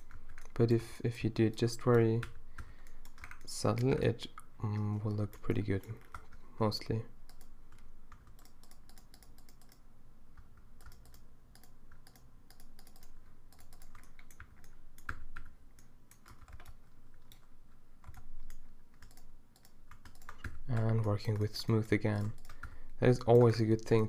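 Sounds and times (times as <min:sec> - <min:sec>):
faint low hum: 0:00.0 - 0:24.0
keyboard keys clicking: 0:10.8 - 0:24.0.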